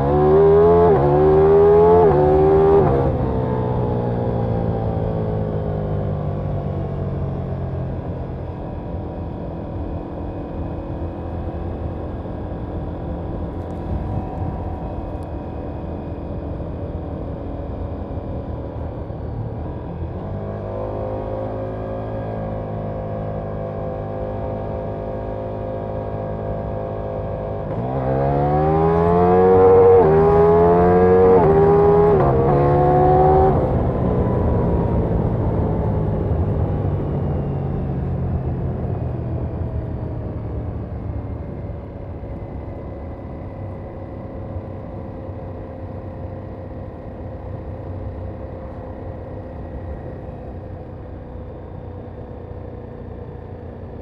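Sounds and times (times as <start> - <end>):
motorcycle engine revving: 0.0 - 3.5, 20.2 - 36.5.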